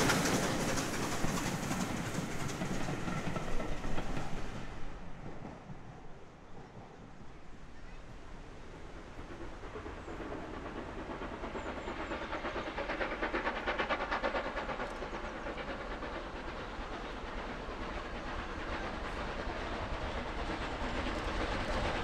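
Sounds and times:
steam locomotive exhaust beats: 0.0s - 22.0s.

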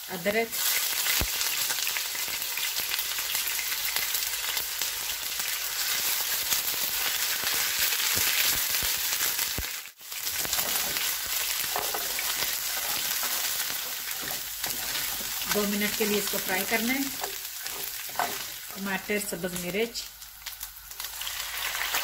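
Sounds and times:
garlic sizzling in hot oil: 0.0s - 22.0s
spatula stirring in pan: 10.2s - 19.0s.

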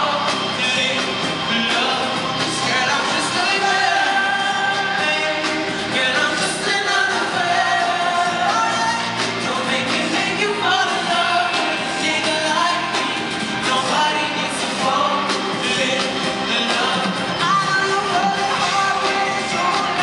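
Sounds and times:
live band playing slow song: 0.0s - 20.0s
man singing: 0.0s - 20.0s.

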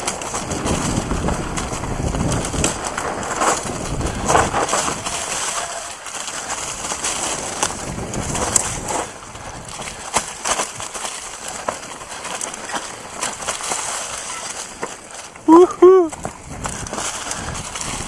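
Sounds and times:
wind buffeting microphone: 0.0s - 5.6s, 6.4s - 10.2s, 15.4s - 18.0s
bike rattling over bumps: 0.0s - 18.0s
bike tyres crunching through leaves: 0.0s - 18.0s.

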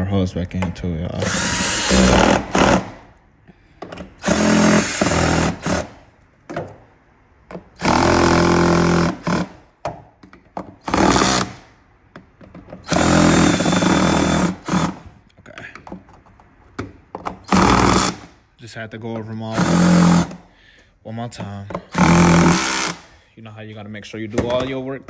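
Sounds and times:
cordless drill driving screws: 1.2s - 3.0s, 4.2s - 6.0s, 7.8s - 9.6s, 10.8s - 11.6s, 12.8s - 15.0s, 17.4s - 18.3s, 19.5s - 20.4s, 21.9s - 23.1s.

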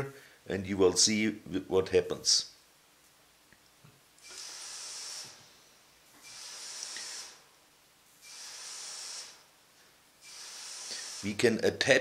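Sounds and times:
ultrasonic sieve hissing: 4.2s - 7.6s, 8.2s - 9.5s, 10.2s - 11.8s.

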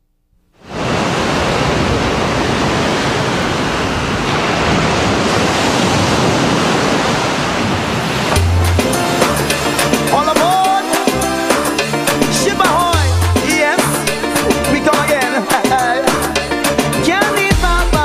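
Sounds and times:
ocean surf washing onto beach: 0.6s - 16.8s
music: 8.3s - 18.0s.

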